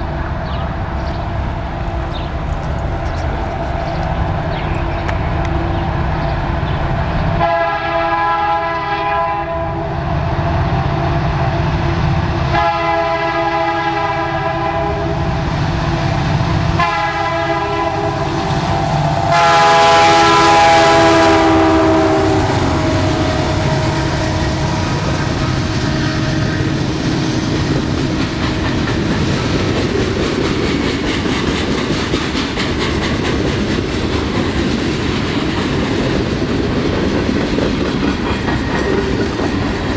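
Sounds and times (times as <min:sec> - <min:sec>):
diesel engines rumbling: 0:00.0 - 0:08.8, 0:09.8 - 0:39.9
train horn blasts: 0:07.4 - 0:10.0, 0:12.5 - 0:15.4, 0:16.7 - 0:26.8
train wheels clacking on rails: 0:12.4 - 0:39.9.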